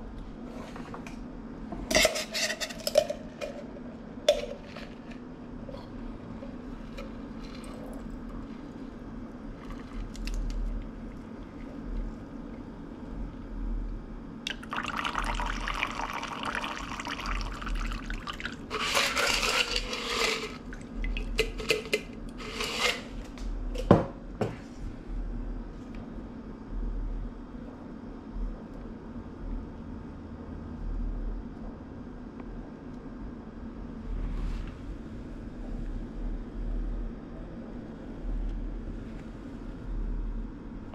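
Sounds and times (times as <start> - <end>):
liquid pouring and dripping: 14.5 - 18.7
ice shifting in metal tin: 18.2 - 23.2.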